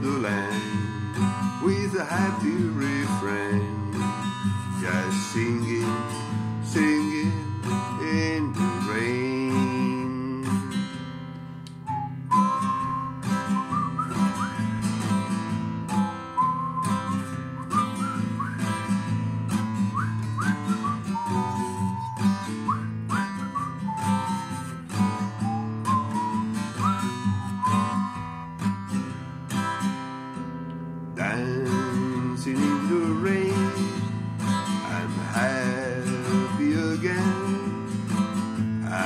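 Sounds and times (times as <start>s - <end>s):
person singing: 0.0s - 10.8s, 31.2s - 34.1s, 34.8s - 38.1s
man whistling a melody: 0.0s - 11.1s, 11.7s - 30.4s, 31.2s - 39.0s
acoustic guitar strumming: 0.0s - 39.0s.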